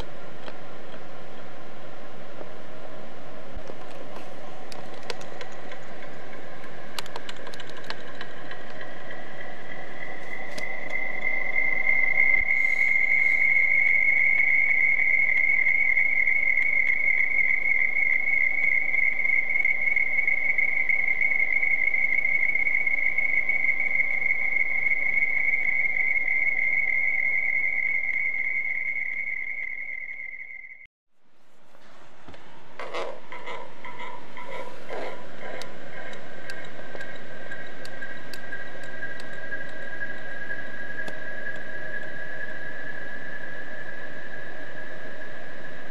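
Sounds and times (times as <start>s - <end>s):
scratchy texture with clicks: 3.7s - 11.0s
high-pitched trilling tone: 8.9s - 30.8s.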